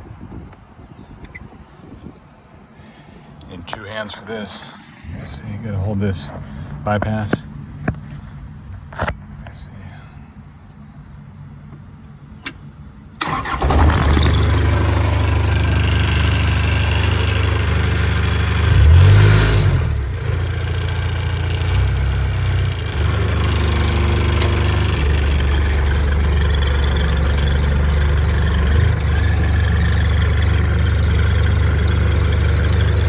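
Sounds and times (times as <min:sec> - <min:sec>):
tractor engine starting and idling: 0:12.4 - 0:33.0
engine revving: 0:13.2 - 0:33.0.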